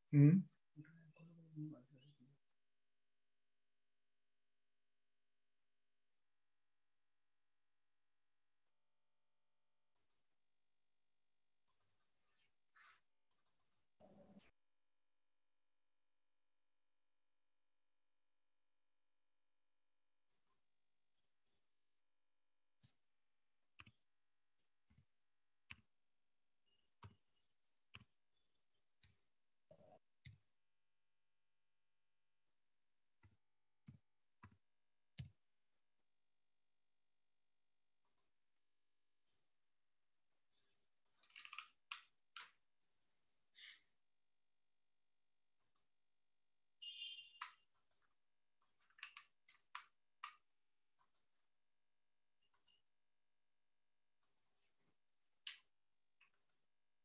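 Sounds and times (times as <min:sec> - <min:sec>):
typing on computer keyboard: 0:13.3 - 0:14.4, 0:26.9 - 0:27.3, 0:47.4 - 0:51.3.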